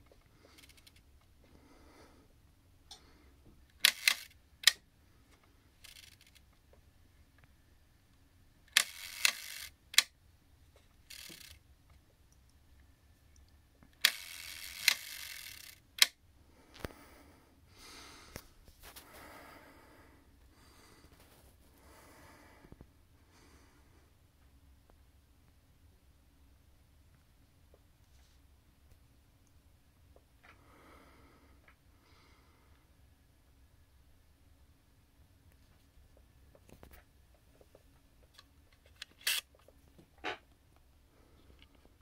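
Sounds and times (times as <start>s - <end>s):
camera shutter clicks: 3.8s - 4.8s, 8.7s - 10.1s, 11.1s - 11.6s, 14.0s - 16.2s, 39.0s - 39.5s
shutter timer buzzing: 3.8s - 4.8s, 5.8s - 6.4s, 8.7s - 10.1s, 11.1s - 11.6s, 14.0s - 16.1s, 39.2s - 39.4s.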